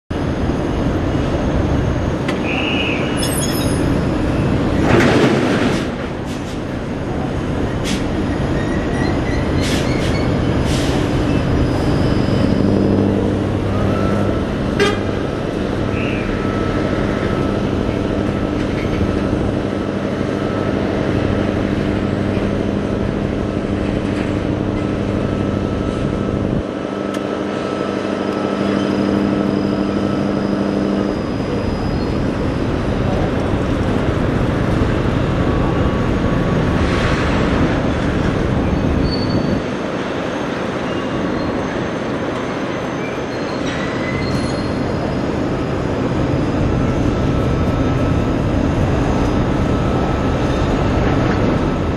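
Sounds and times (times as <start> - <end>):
engine droning hum: 0.1 - 51.9
port machinery and traffic noise: 0.1 - 51.9
loud rush of noise: 10.2 - 43.3, 44.7 - 51.9.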